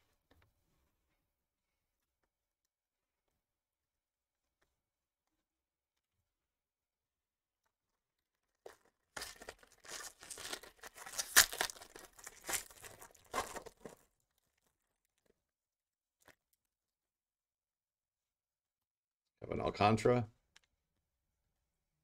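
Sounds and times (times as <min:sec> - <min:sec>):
foil wrapper tearing and crinkling: 0:08.6 - 0:14.9.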